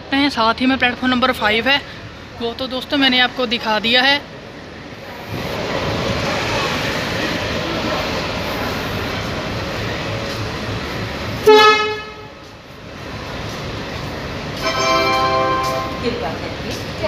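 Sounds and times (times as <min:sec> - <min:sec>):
steady rushing background noise: 0:00.0 - 0:11.5, 0:12.2 - 0:17.0
train horn toot: 0:11.4 - 0:12.4.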